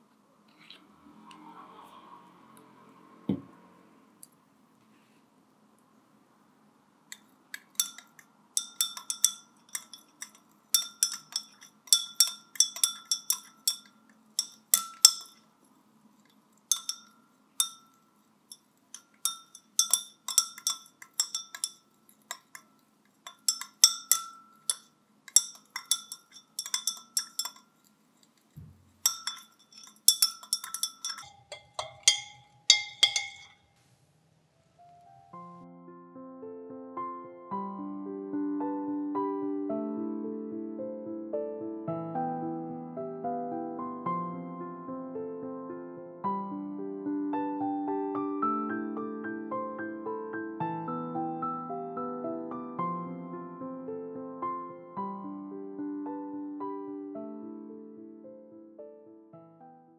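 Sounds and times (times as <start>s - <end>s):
stirring rod clinking on glass: 7.6s - 15.5s, 16.7s - 33.7s.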